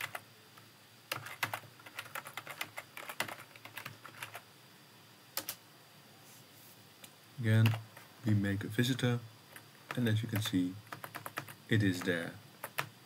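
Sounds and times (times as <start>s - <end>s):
typing on computer keyboard: 0.0s - 0.2s, 1.1s - 4.4s, 5.4s - 5.6s, 9.5s - 12.9s.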